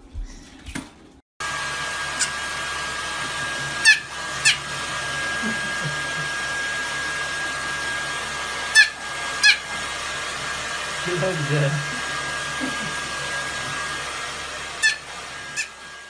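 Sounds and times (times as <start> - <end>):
hair dryer blowing with whine: 1.4 - 16.0
puppy yipping: 3.8 - 4.7, 8.7 - 9.7, 14.8 - 15.8.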